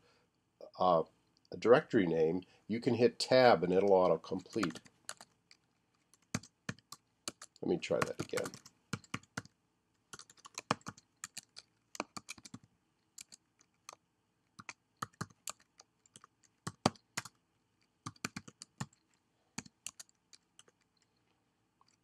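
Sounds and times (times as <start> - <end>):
typing on keyboard: 3.8 - 14.0, 14.6 - 22.0.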